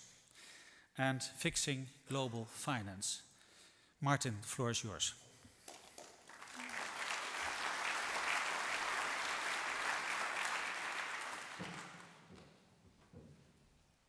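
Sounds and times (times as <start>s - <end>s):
audience applauding: 6.0s - 12.3s.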